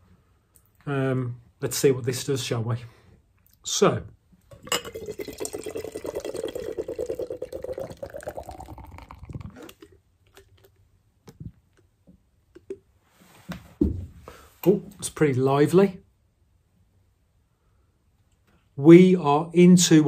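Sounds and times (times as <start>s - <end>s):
beer glugging into a glass: 4.5s - 10.8s
trickles and drips: 4.7s - 10.8s.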